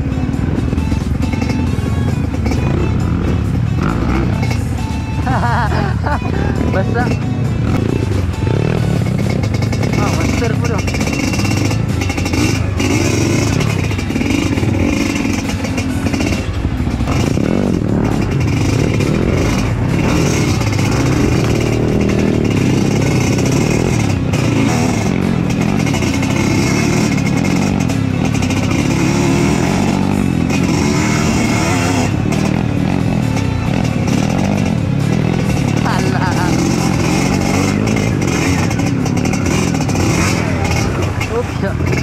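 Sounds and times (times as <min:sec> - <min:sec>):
motorcycle engine running: 0:00.0 - 0:42.0.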